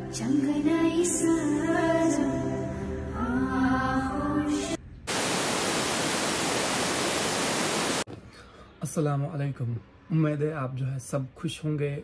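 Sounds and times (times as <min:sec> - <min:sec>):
static-like hiss: 0:05.1 - 0:08.1.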